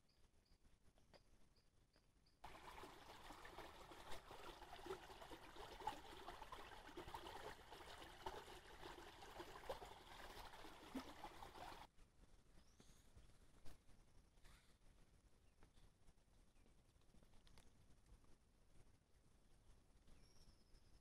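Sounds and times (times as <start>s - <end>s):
stream trickling: 2.4s - 11.9s.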